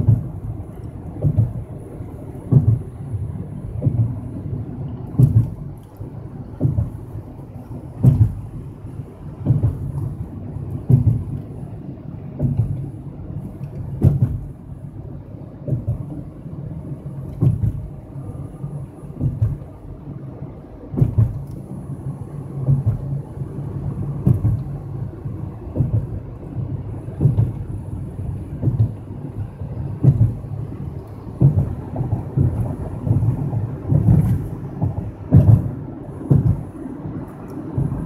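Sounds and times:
tyres thumping over road joints: 0.0s - 11.6s, 12.2s - 12.9s, 13.7s - 14.8s, 15.6s - 20.0s, 20.9s - 21.6s, 22.6s - 38.0s
low road rumble: 0.0s - 38.0s.

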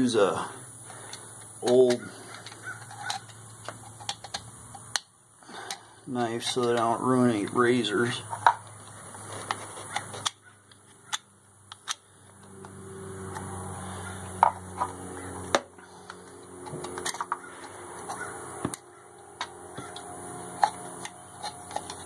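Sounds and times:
blade clicking and tapping metal: 15.5s - 22.0s
knife scraping metal: 19.2s - 22.0s.

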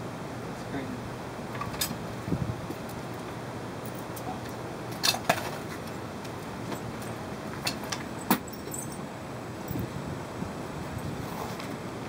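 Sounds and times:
metal tools clinking: 7.6s - 9.0s.

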